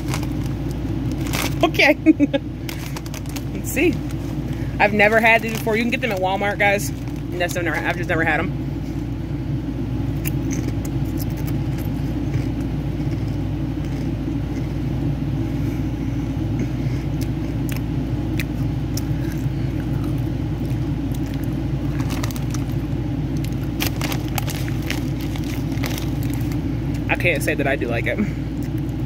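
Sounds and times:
potato chips crunching: 0:00.0 - 0:01.8, 0:02.6 - 0:08.1, 0:10.2 - 0:14.6, 0:17.2 - 0:27.4
chip bag crinkling: 0:00.0 - 0:08.1, 0:19.2 - 0:27.4
low hum: 0:00.0 - 0:29.0.

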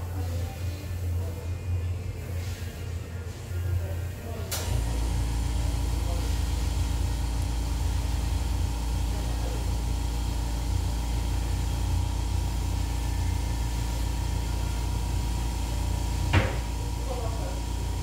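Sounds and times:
motor humming: 0:04.6 - 0:18.0.

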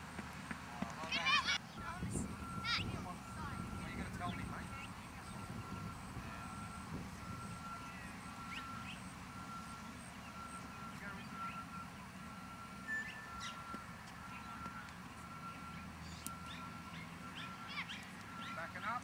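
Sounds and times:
low engine rumble: 0:00.0 - 0:19.0
reversing alarm beeping: 0:01.2 - 0:19.0
bird chirps: 0:07.3 - 0:11.8, 0:12.8 - 0:19.0.

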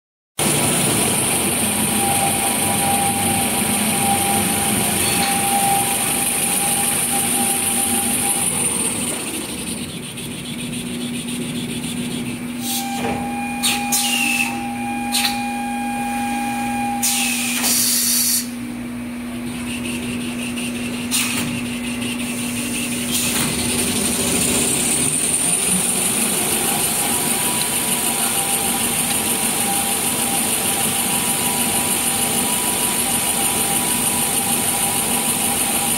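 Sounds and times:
paper rewinding machine humming: 0:00.4 - 0:12.7, 0:19.2 - 0:35.9
sharp mechanical clicks and knocks: 0:20.9 - 0:22.1.

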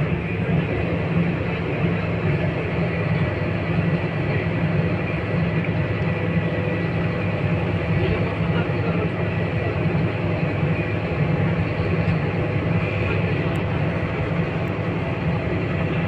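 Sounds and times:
bus engine hum: 0:00.0 - 0:16.0
road and body noise: 0:00.0 - 0:16.0.

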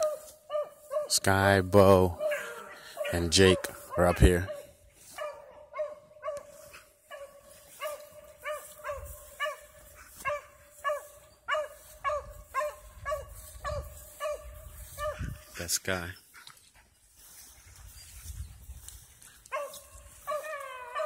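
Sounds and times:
dog barking: 0:00.0 - 0:01.2, 0:02.1 - 0:15.4, 0:19.5 - 0:21.0.

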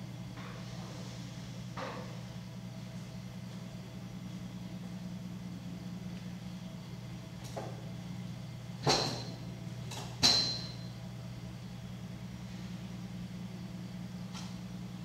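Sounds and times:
potter's wheel humming: 0:00.0 - 0:15.0
sharp ringing knocks: 0:10.2 - 0:10.8.

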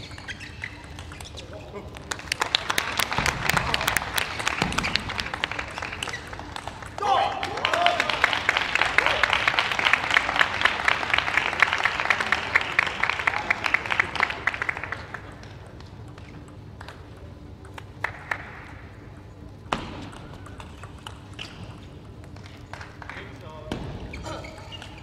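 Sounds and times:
audience applauding: 0:02.1 - 0:15.5.

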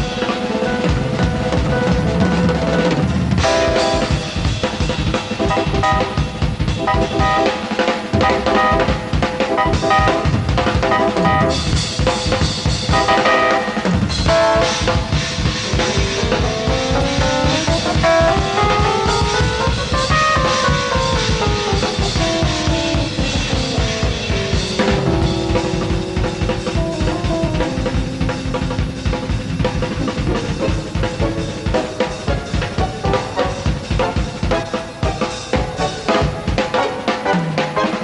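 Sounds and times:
drum kit: 0:00.0 - 0:38.0
jazz fusion band playing: 0:00.0 - 0:38.0
climbing run of notes: 0:12.9 - 0:36.8.

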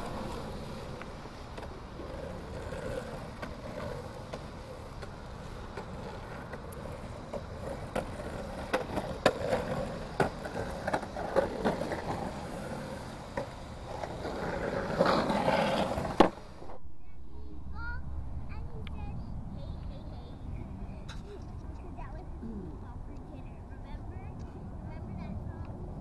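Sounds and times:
skateboards clacking on ground: 0:00.0 - 0:16.8
skateboard wheels rolling on concrete: 0:00.0 - 0:26.0.

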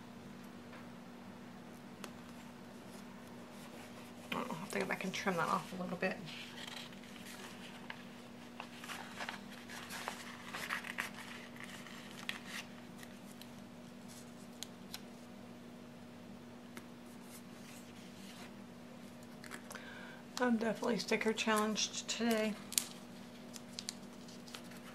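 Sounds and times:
paper rustling: 0:02.2 - 0:15.0, 0:22.2 - 0:24.9.

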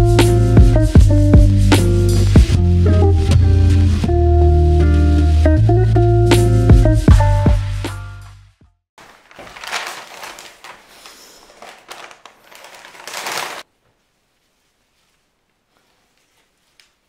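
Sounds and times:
guitar tune: 0:00.0 - 0:08.3
paper wrapping rustling: 0:09.0 - 0:17.0.

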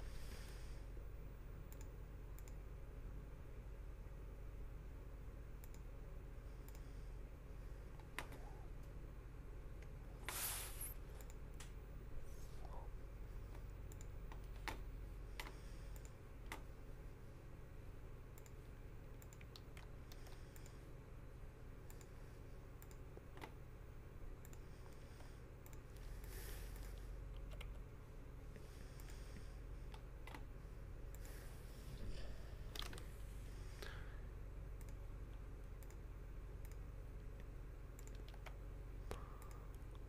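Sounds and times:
low steady hum: 0:00.0 - 0:40.0
keyboard and mouse clicks: 0:01.7 - 0:02.6, 0:05.6 - 0:05.9, 0:11.2 - 0:11.8, 0:13.5 - 0:16.7, 0:18.3 - 0:20.8, 0:22.8 - 0:23.6, 0:27.3 - 0:27.9, 0:29.8 - 0:30.5, 0:32.7 - 0:33.1, 0:34.8 - 0:36.0, 0:36.6 - 0:40.0.

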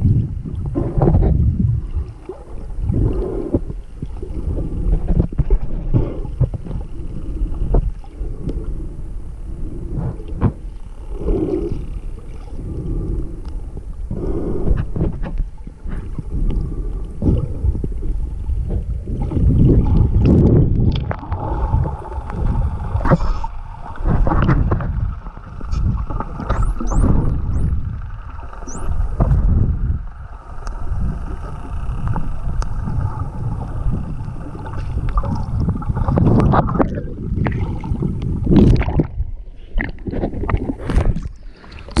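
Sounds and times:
underwater rumble and bubbles: 0:00.0 - 0:42.0
dolphin whistles: 0:26.5 - 0:27.8, 0:28.6 - 0:29.0.

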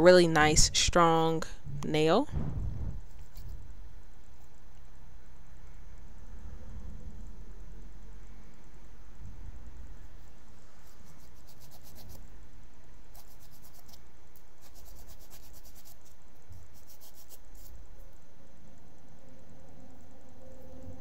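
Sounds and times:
nail file scratching fingernails: 0:03.1 - 0:03.6, 0:10.8 - 0:12.3, 0:13.1 - 0:17.8.

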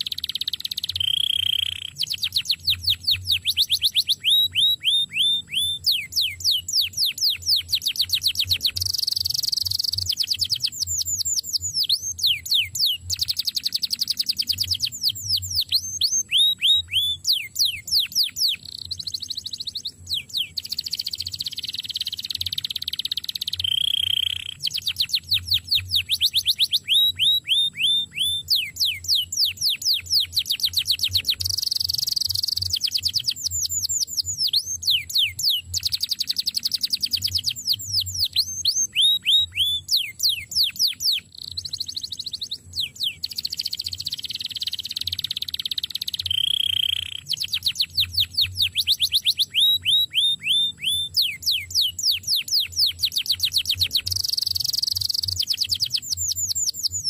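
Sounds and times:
canary singing: 0:00.0 - 0:57.0.

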